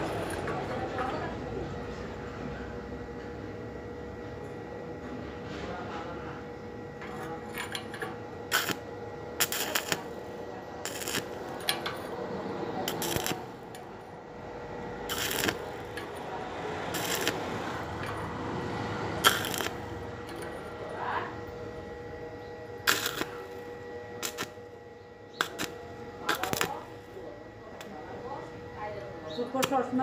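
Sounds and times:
steady hum: 0.0s - 30.0s
welding arc crackling: 7.0s - 30.0s.

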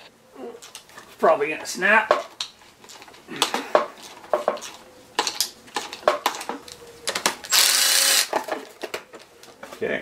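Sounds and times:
hand ratchet clicking: 7.5s - 8.3s
loud rasping burst: 7.5s - 8.3s.

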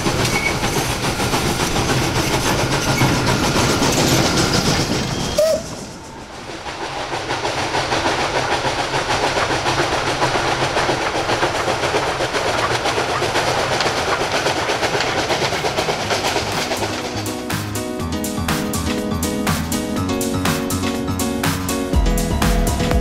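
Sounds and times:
clatter of wheels and wagons: 0.0s - 18.2s
steam locomotive exhaust: 0.0s - 22.9s
short high squeal: 3.0s - 6.2s.

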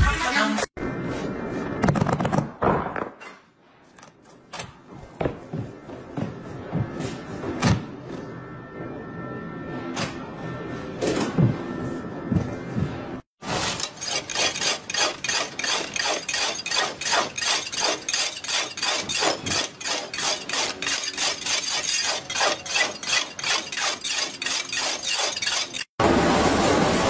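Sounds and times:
hand tool striking metal: 13.6s - 25.9s.

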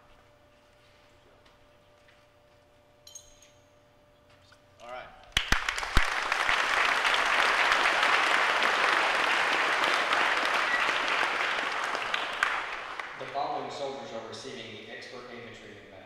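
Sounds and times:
crowd applauding: 5.4s - 14.1s.

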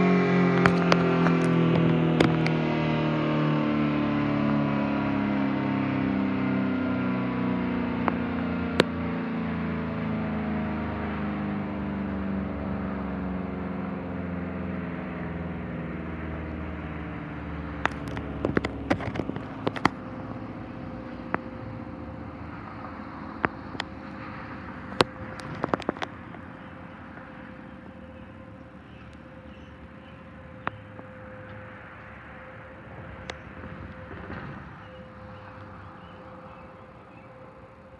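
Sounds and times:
siren winding down: 0.0s - 37.9s
faint steady tone: 11.6s - 37.9s.

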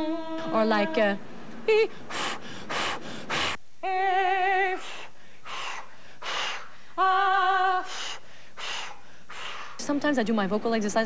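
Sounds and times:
breathy puffs: 1.9s - 3.6s, 4.7s - 7.0s, 7.8s - 9.9s.

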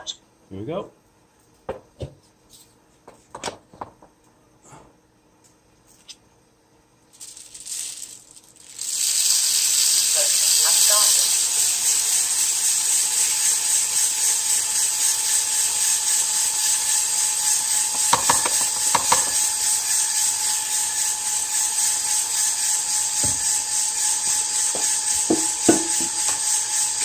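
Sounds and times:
coffee beans tumbling in drum: 7.0s - 27.0s
machine whine: 7.2s - 27.0s.

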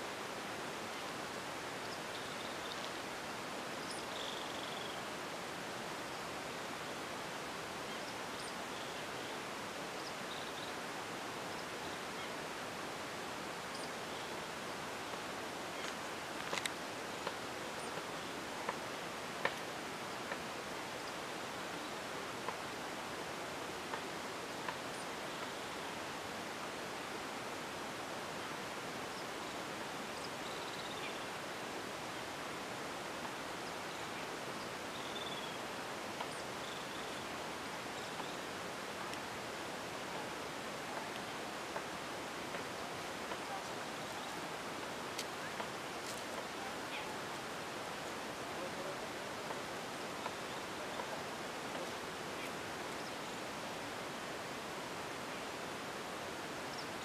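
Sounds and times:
open-air ambience hiss: 0.0s - 57.0s
faint bird chirps: 1.8s - 2.9s, 3.7s - 5.2s, 7.8s - 12.4s, 28.4s - 31.4s, 33.6s - 38.6s.

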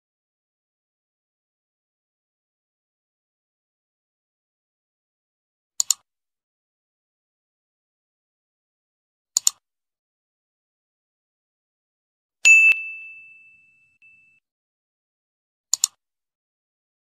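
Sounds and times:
mouse double-click: 5.8s - 6.0s, 9.4s - 9.6s, 15.7s - 16.0s
bright bell ding: 12.5s - 14.4s.

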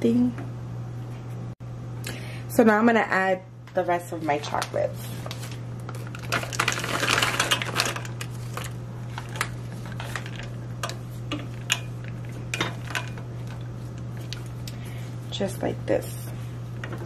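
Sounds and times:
steady low hum: 0.0s - 17.0s
chocolate wafers rattling into pot: 5.9s - 11.0s.

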